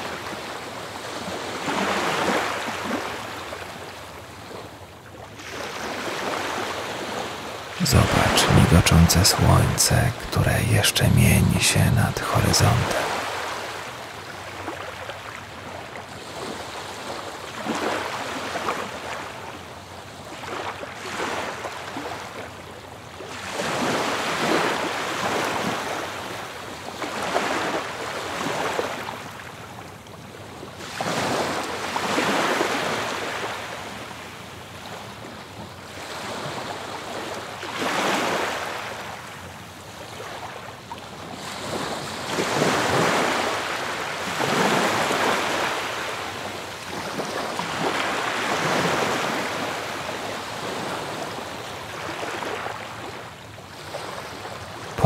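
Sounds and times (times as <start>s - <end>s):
ocean waves washing onto beach: 0.0s - 8.8s, 12.8s - 55.0s.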